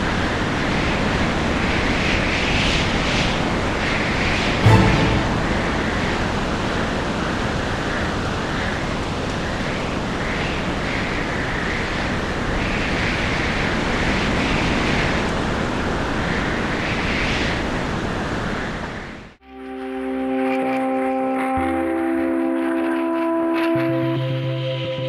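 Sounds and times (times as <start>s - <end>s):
wind blowing: 4.4s - 9.6s.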